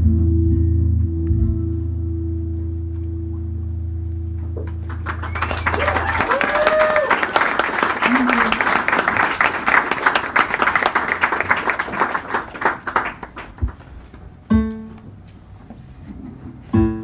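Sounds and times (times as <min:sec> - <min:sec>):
audience applause: 0:04.7 - 0:14.0.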